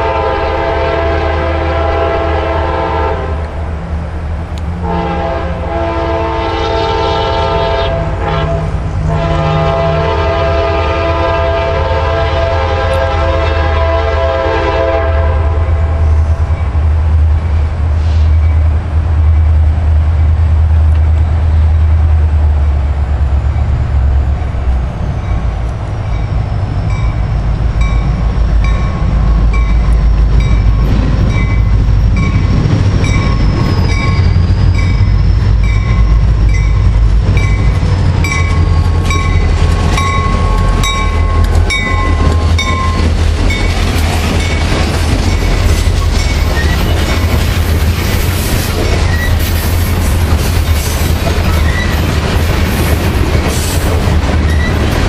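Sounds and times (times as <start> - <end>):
train low rumble: 0.0 - 55.0
wheels clicking over rail joints: 24.8 - 55.0.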